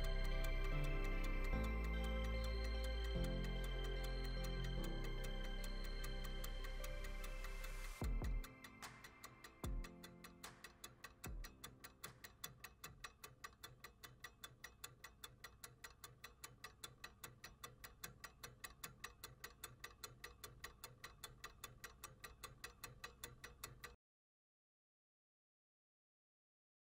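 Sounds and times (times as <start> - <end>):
soft low music pulse: 0.0 - 10.5
clock-like ticking: 0.0 - 24.0.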